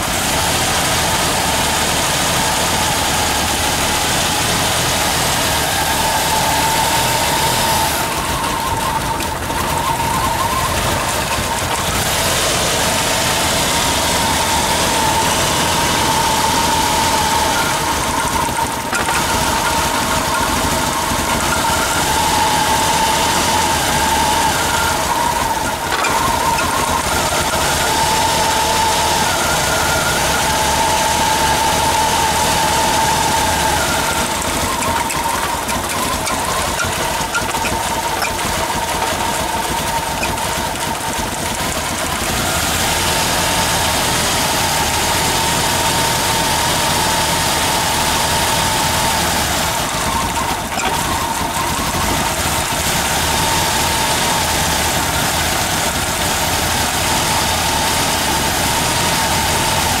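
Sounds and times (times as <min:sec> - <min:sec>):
car engine idling roughly: 0:00.0 - 1:00.0
high whine: 0:00.0 - 1:00.0.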